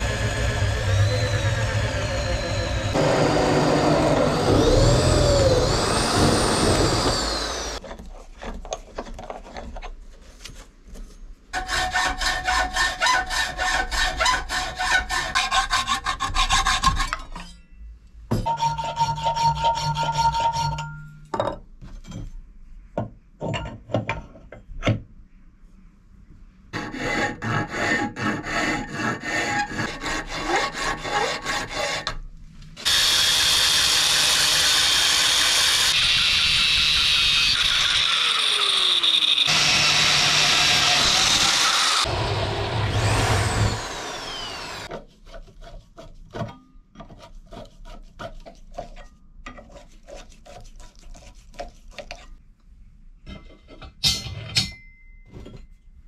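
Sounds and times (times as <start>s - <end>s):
power tool whirring: 0.0s - 7.8s, 32.8s - 44.9s
hand tool rasping on metal: 18.4s - 20.9s, 26.8s - 32.2s, 47.0s - 52.4s.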